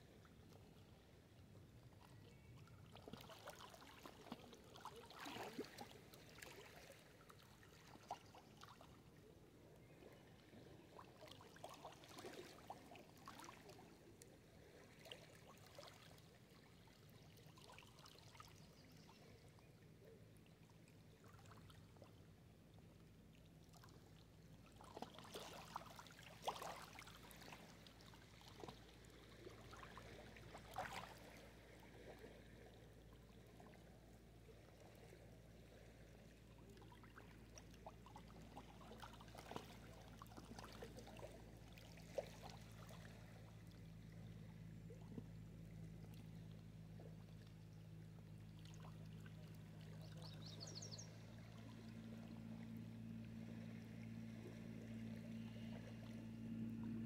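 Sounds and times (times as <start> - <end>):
water splashes: 2.0 - 19.4, 23.4 - 47.5
waves lapping against rocks: 2.9 - 9.2, 10.6 - 16.6, 24.7 - 33.7.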